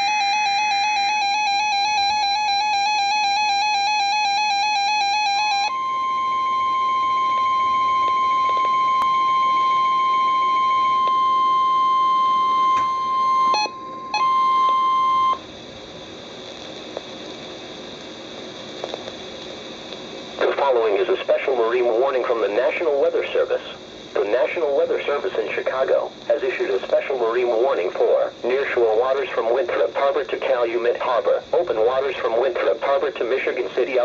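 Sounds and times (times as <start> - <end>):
steady warning alarm tone: 0.0 - 15.5
low radio hiss: 4.4 - 34.0.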